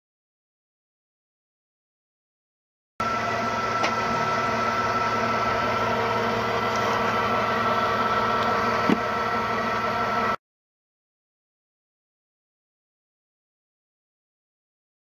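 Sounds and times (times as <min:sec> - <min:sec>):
core drilling rig whining: 0:03.0 - 0:10.4.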